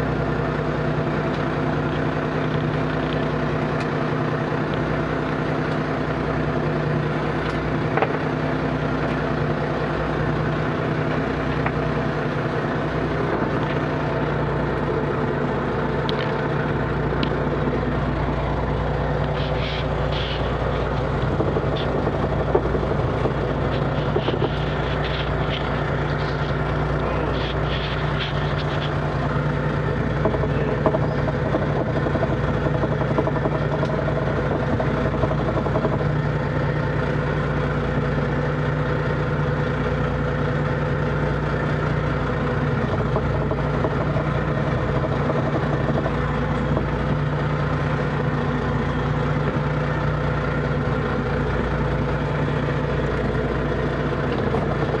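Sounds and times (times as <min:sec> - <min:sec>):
boat engine running: 0:00.0 - 0:55.0
short high squeaks: 0:19.3 - 0:20.6.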